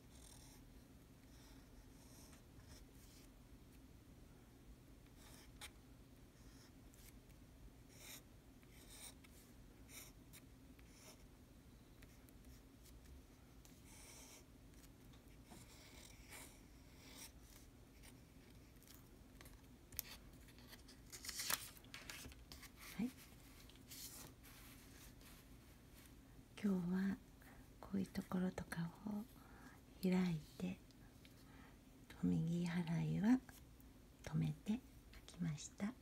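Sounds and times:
pen nib scratching paper: 0:07.9 - 0:09.2, 0:09.9 - 0:11.3, 0:13.6 - 0:18.7
paper rustling: 0:19.9 - 0:26.1.

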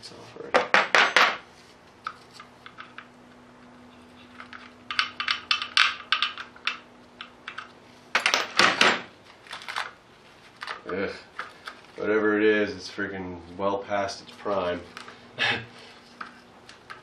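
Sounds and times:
brittle padding crackling: 0:08.5 - 0:12.0.

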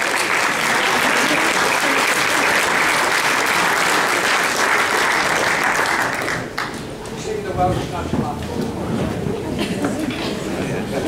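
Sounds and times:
people clapping: 0:00.0 - 0:07.0.

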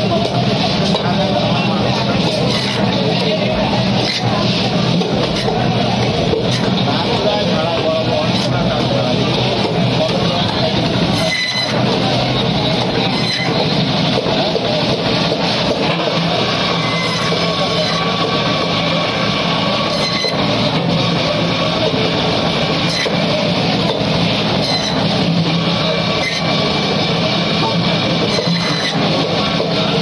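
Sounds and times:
band saw humming: 0:00.0 - 0:30.0
saw slicing through fish: 0:16.2 - 0:18.3.

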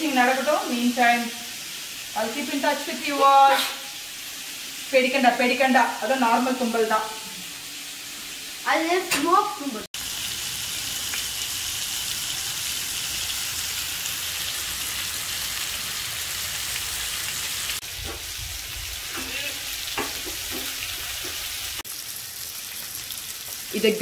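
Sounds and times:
chicken sizzling in oil: 0:00.0 - 0:24.0.

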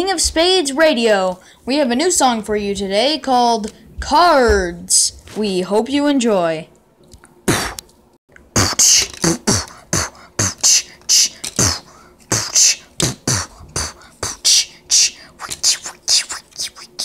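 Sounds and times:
person beatboxing: 0:07.5 - 0:07.8, 0:08.4 - 0:17.0.

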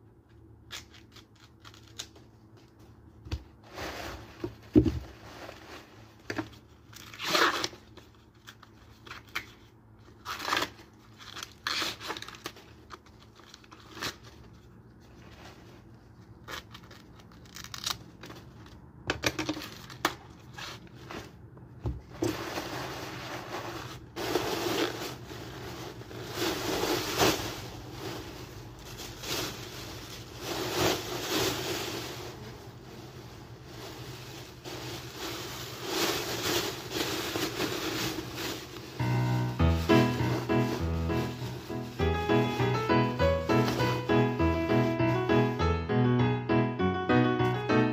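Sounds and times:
husks rustling in plastic bag: 0:02.7 - 0:07.2, 0:22.2 - 0:45.5
corn husks ripping: 0:16.4 - 0:18.2.

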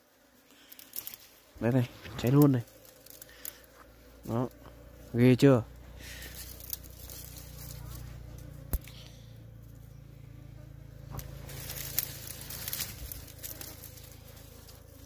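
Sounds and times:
bees buzzing: 0:00.0 - 0:15.0
crackles and snaps: 0:00.5 - 0:01.4, 0:02.0 - 0:03.9, 0:06.2 - 0:09.1, 0:11.1 - 0:15.0.

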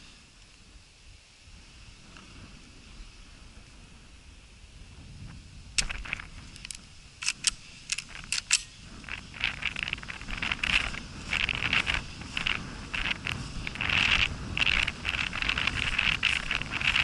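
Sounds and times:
shotgun metallic clicks: 0:05.8 - 0:10.2.

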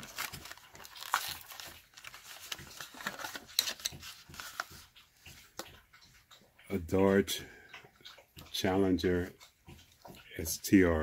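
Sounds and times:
packaging crinkling: 0:00.0 - 0:05.0.

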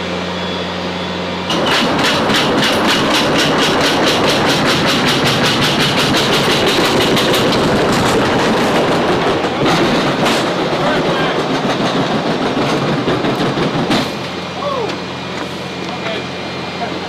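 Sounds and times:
pallet rolling over roller tracks: 0:01.5 - 0:14.4.

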